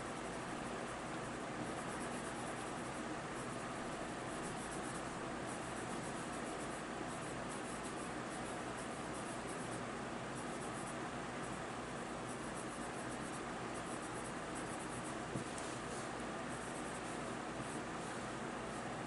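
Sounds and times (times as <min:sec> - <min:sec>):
pencil scratching on paper: 0:00.0 - 0:19.0.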